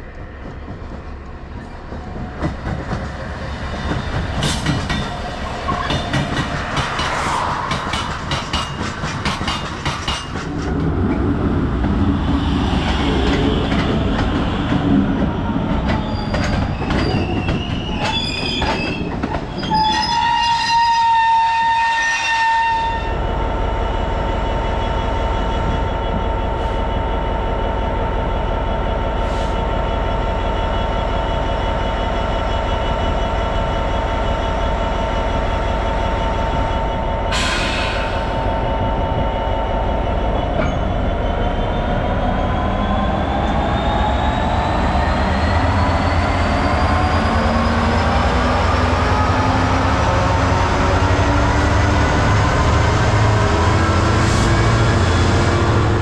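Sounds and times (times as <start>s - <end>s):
freight train passing: 0.0s - 56.0s
wheel squeal: 15.9s - 22.6s
diesel locomotive idling: 23.2s - 43.6s.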